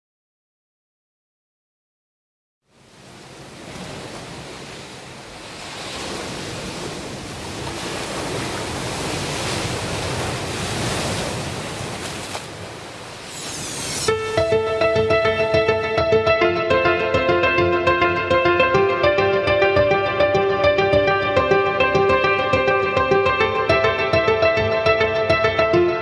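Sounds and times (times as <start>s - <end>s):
rushing surf-like noise: 2.8s - 16.0s
short whoosh: 13.1s - 14.2s
sustained keyboard notes: 14.1s - 26.0s.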